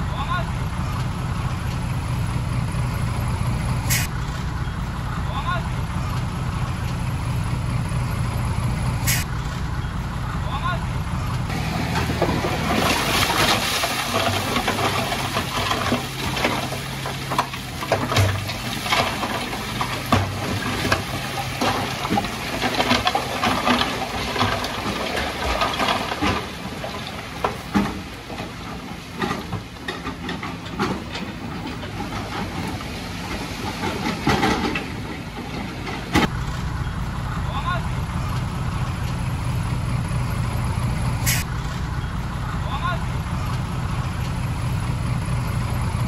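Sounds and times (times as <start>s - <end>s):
truck engine humming: 0.0s - 46.0s
rocks clattering out of truck bed: 11.5s - 36.3s.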